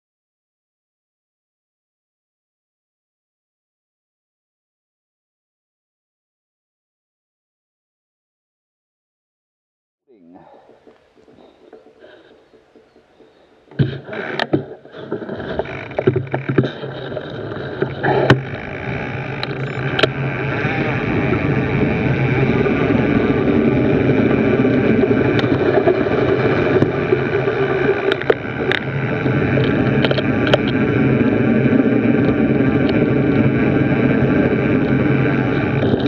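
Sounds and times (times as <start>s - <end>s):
wind on microphone: 10.1s - 36.0s
bike tyres rolling on dirt: 10.3s - 36.0s
bike clicks and knocks over bumps: 10.6s - 36.0s.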